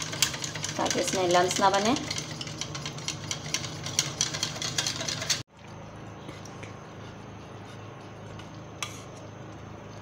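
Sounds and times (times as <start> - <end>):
whisk clicking against bowl: 0.0 - 5.4.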